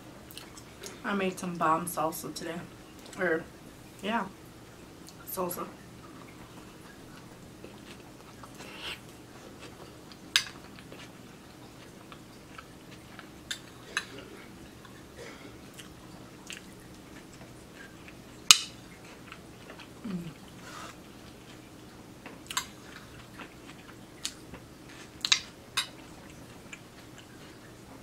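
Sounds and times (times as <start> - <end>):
chewing soft food: 6.0 - 28.0.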